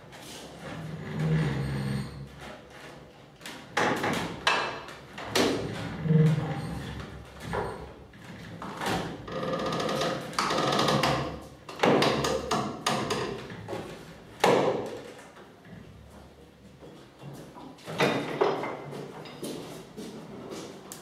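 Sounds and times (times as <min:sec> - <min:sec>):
hollow wooden knocks: 0:08.7 - 0:15.1.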